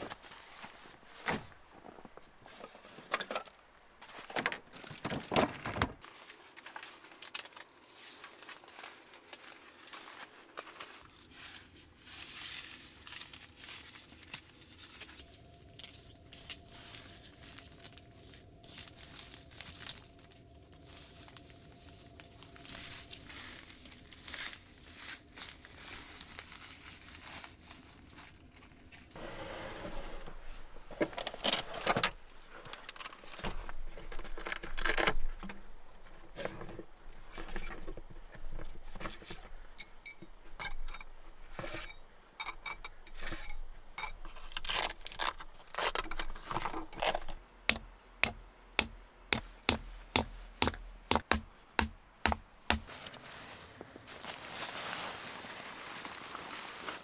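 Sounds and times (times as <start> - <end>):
tent fabric rustling: 7.9 - 40.0, 52.8 - 57.0
metal tent stakes clinking: 31.2 - 53.0.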